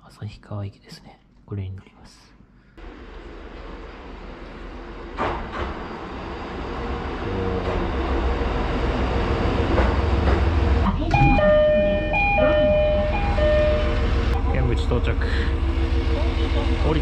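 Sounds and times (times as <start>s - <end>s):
diesel railcar rumble: 2.8s - 17.0s
electronic door chime: 11.0s - 14.4s.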